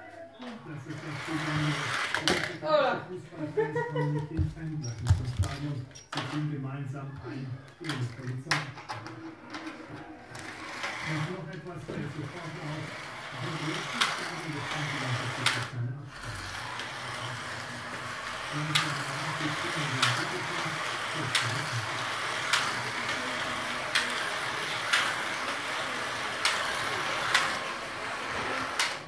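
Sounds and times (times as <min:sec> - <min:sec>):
slot car motors whirring: 0:00.8 - 0:02.5, 0:10.2 - 0:29.0.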